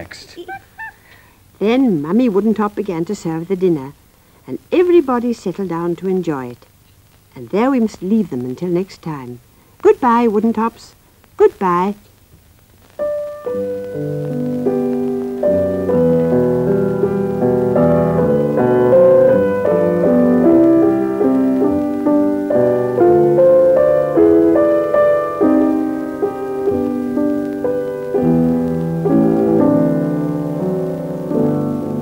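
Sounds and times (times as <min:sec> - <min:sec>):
piano melody over chords: 0:13.0 - 0:32.0.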